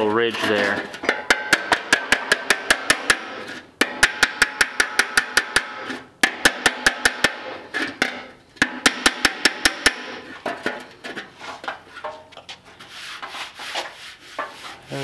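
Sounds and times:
hammer tapping steel panel: 1.0s - 10.8s.

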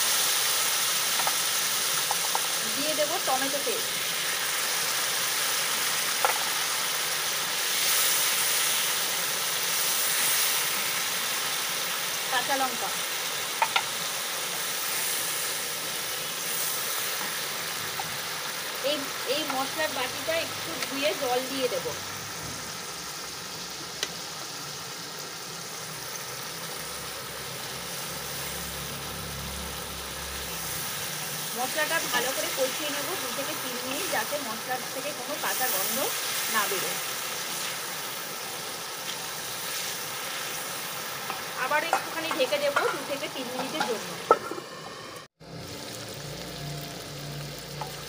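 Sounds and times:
paste sizzling in hot oil: 0.0s - 48.0s.

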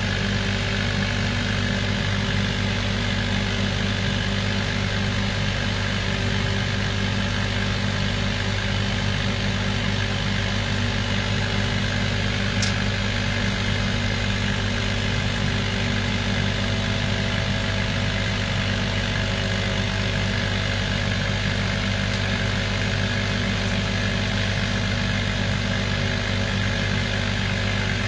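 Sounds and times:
laser cutting machine humming: 9.7s - 28.0s.

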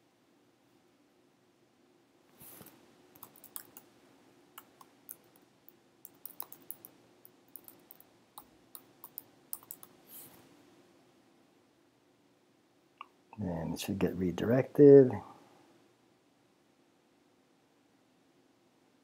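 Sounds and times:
typing on keyboard: 3.2s - 3.9s, 4.6s - 5.4s, 6.0s - 10.0s.

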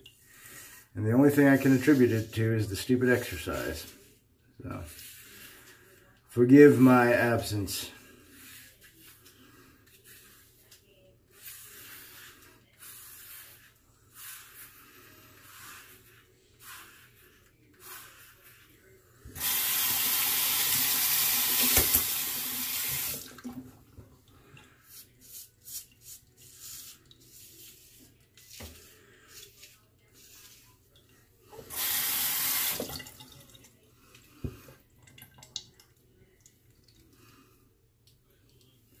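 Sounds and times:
sink tap running: 19.4s - 23.4s, 31.7s - 33.3s.

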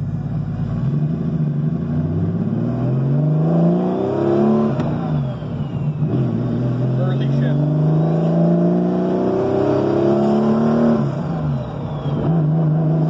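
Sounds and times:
car engine accelerating hard: 0.0s - 13.0s.

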